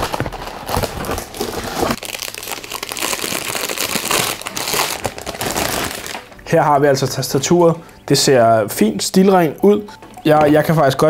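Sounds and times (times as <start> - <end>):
plastic wrapping crinkling: 0.0 - 6.5.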